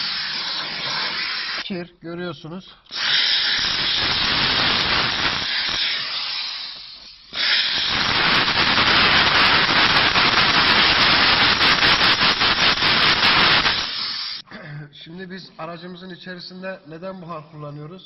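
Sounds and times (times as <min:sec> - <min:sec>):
steam cleaner hissing: 0:00.0 - 0:01.7, 0:02.9 - 0:14.4.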